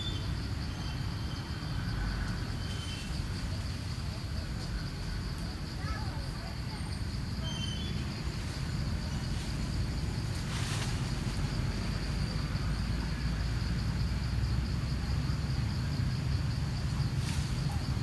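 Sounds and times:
high-pitched insect trill: 0.0 - 18.0
short rustles: 9.3 - 11.4.

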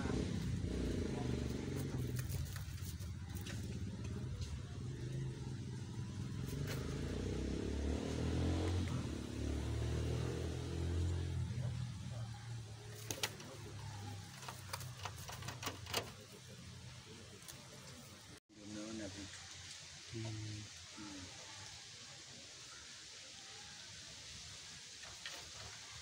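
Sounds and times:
vehicle engine passing by: 0.0 - 18.9.

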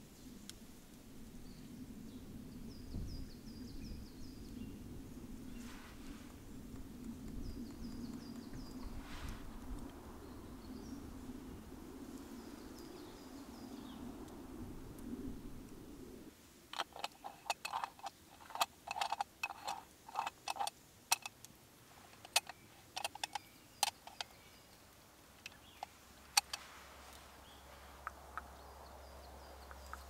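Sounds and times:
sharp metal clicks and taps: 16.8 - 21.5, 22.2 - 24.3, 25.4 - 26.6.

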